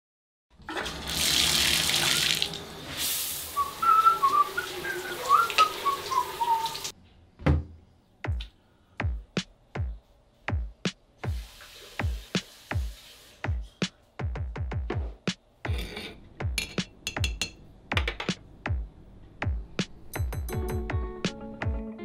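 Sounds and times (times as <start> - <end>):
shower spray hissing: 1.1 - 6.9, 11.2 - 13.9
man whistling: 3.6 - 6.9
drum machine kicks: 7.5 - 11.4, 13.5 - 15.4, 16.4 - 21.8.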